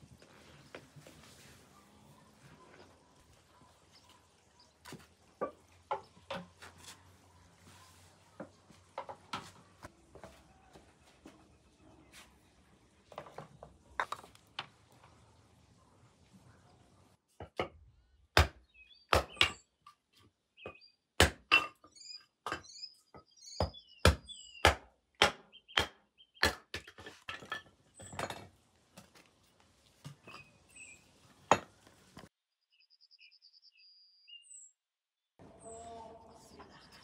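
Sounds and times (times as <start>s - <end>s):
small birds chirping: 1.6s - 9.0s, 17.9s - 21.2s, 21.8s - 24.8s, 25.5s - 27.1s, 30.2s - 31.4s, 32.5s - 37.0s.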